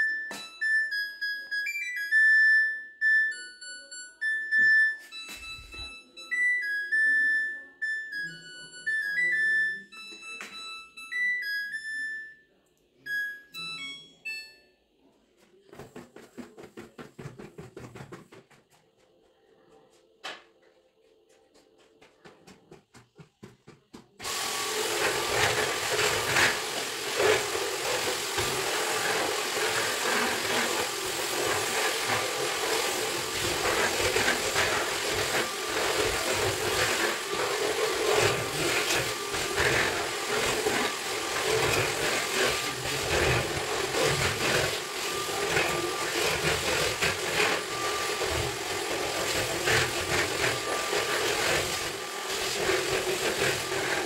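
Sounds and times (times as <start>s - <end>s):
vacuum cleaner running: 22.9s - 54.0s.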